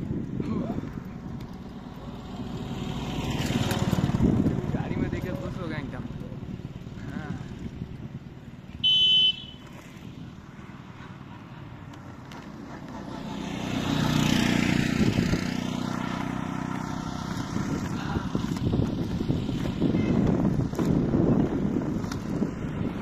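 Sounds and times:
skate wheels rolling on asphalt: 0:00.0 - 0:05.7, 0:07.6 - 0:23.0
wind on microphone: 0:00.0 - 0:08.6, 0:14.4 - 0:15.7, 0:17.0 - 0:23.0
short high beep: 0:08.8 - 0:09.6.

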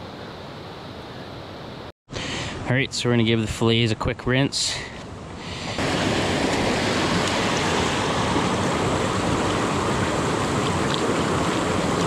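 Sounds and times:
creek rushing over rocks: 0:05.4 - 0:12.0.

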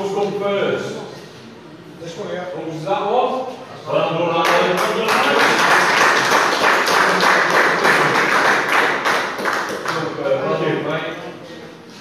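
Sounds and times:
people clapping: 0:04.4 - 0:10.4.

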